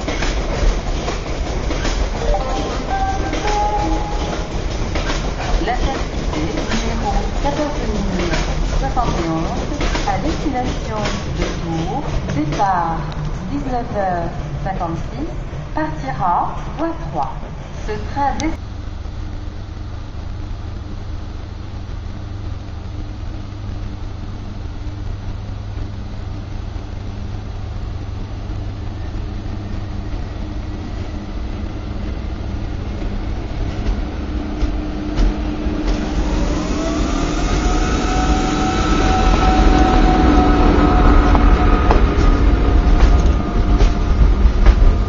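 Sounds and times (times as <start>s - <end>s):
locomotive low rumble: 0.0s - 45.0s
locomotive whine rising in pitch: 1.4s - 10.1s, 22.8s - 45.0s.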